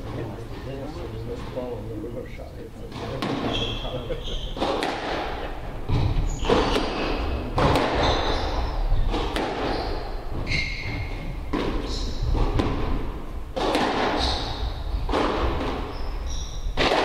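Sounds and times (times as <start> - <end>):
squash ball hitting rackets and walls: 2.9 - 17.0
shoes squeaking on wooden floor: 3.0 - 12.8, 14.2 - 17.0.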